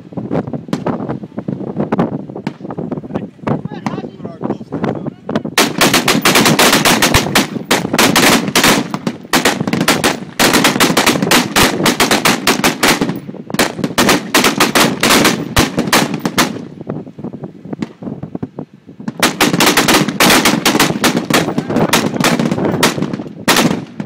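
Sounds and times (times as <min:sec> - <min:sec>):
rifles firing: 0:05.6 - 0:16.7, 0:19.1 - 0:24.0.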